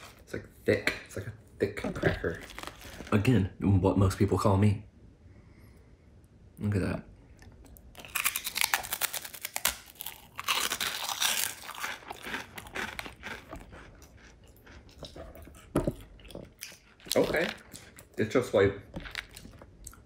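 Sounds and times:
cracker crunching: 1.8 - 3.4, 7.4 - 20.0
chewing: 7.3 - 20.0.

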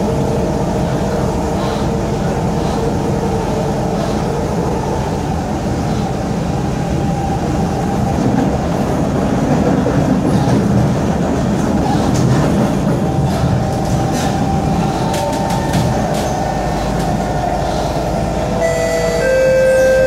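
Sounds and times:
train wheels rumbling on rails: 0.0 - 20.0.

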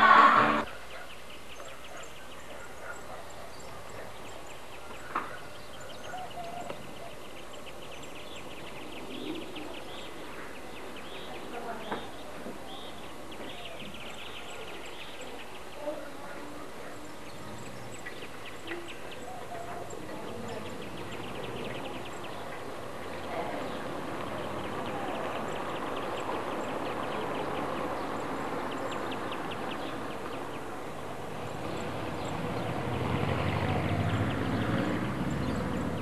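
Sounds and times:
high chirping trills: 0.0 - 0.7
outdoor rushing noise: 0.0 - 0.7.

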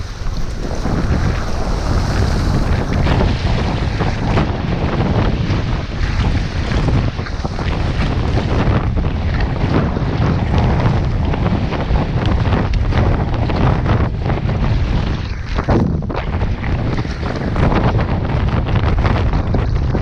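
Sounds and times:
gusty wind buffeting microphone: 0.0 - 20.0
water splashing against hull: 0.0 - 20.0.

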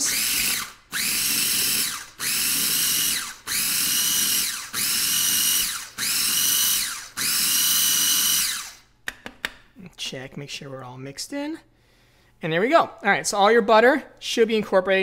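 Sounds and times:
food processor motor whine: 0.0 - 8.9.

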